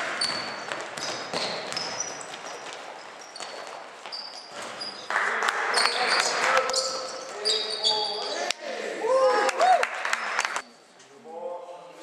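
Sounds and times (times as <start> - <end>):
basketball bouncing: 0.0 - 5.0
sneakers squeaking on floor: 0.0 - 8.5
echoing hall background noise: 0.0 - 12.0.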